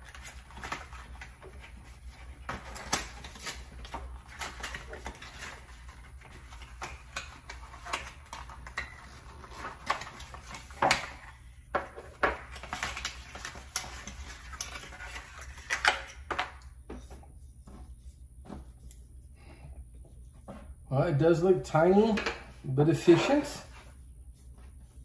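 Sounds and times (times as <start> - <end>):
paper and cardboard rustling: 0.0 - 11.4, 12.0 - 19.2.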